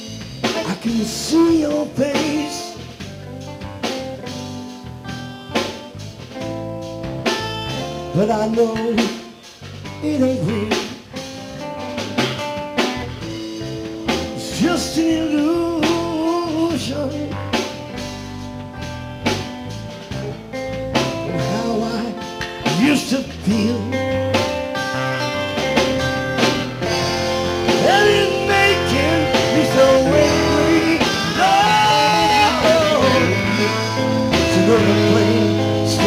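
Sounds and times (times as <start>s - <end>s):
bass guitar: 0.0s - 36.0s
drum kit: 0.0s - 36.0s
electric guitar: 0.0s - 36.0s.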